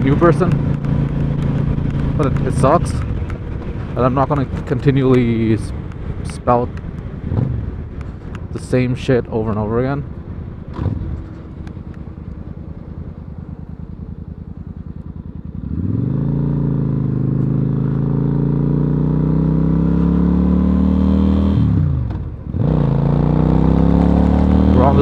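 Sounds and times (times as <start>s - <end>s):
motorcycle engine idling: 0.0s - 18.2s
motorcycle accelerating: 0.0s - 25.0s.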